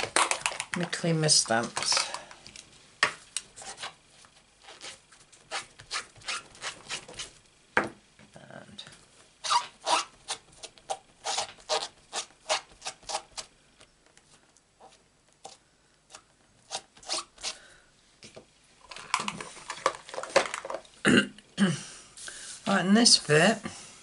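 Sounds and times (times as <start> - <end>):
cloth rubbing acrylic block: 4.6 - 7.4, 9.4 - 13.4.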